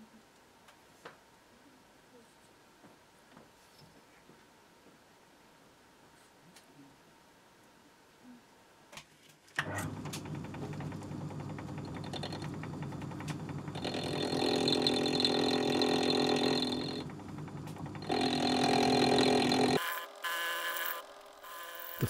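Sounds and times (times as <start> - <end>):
lathe running: 9.9 - 22.0
steel cutter cutting metal bar: 18.0 - 22.0.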